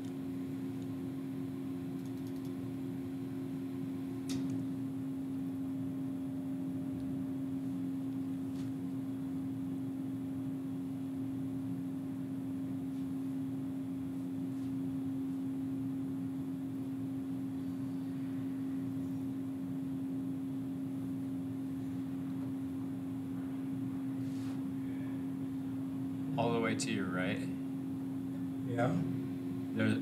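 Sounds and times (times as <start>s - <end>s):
steady mechanical hum: 0.0s - 30.0s
faint clicks: 2.0s - 2.6s.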